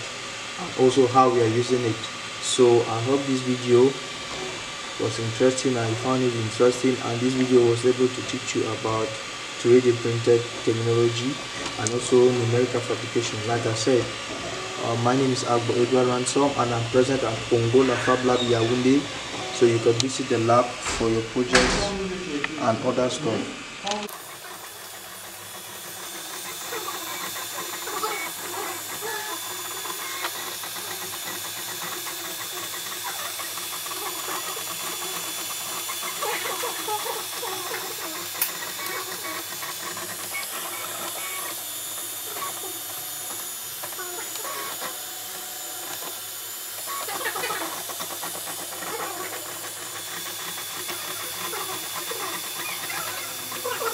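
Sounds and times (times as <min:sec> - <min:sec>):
cooling fans hissing: 0:00.0 - 0:53.9
stepper motors whining: 0:00.0 - 0:53.9.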